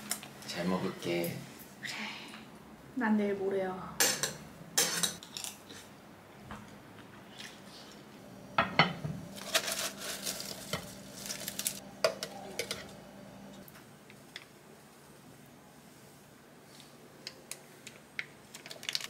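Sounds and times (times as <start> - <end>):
salad leaves rustling: 9.3 - 11.9.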